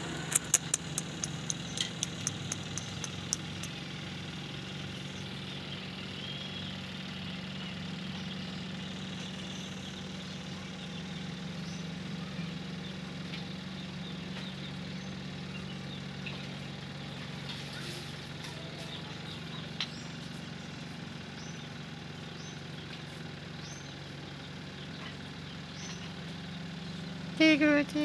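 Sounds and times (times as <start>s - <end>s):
low engine-like hum: 0.0s - 28.0s
sharp clicks: 0.2s - 3.8s.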